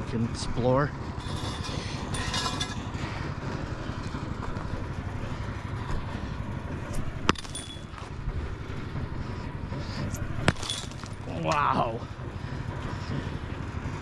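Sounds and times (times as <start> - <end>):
scraping rattle: 0.9 - 5.1, 9.7 - 11.3
short metallic ring: 1.2 - 2.9, 7.3 - 8.1, 10.5 - 11.2
tool striking concrete: 7.3 - 8.1, 10.4 - 11.6.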